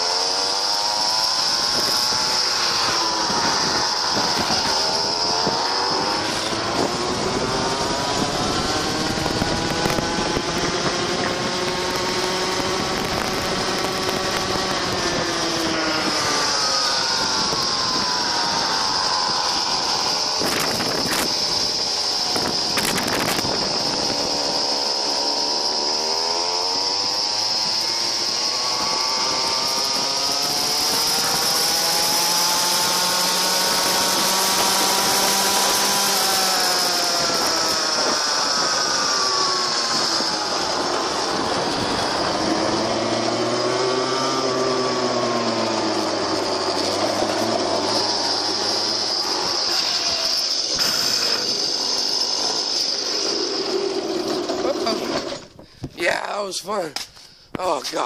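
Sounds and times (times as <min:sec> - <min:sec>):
two-stroke engine revving: 0:00.0 - 0:55.6
high whine: 0:00.0 - 0:58.0.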